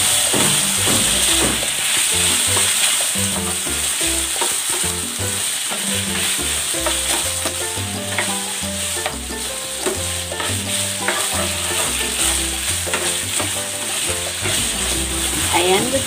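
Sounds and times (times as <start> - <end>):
background music with bass: 0.0 - 16.0
chicken sizzling in hot oil: 0.0 - 16.0
spatula stirring in pan: 0.0 - 16.0.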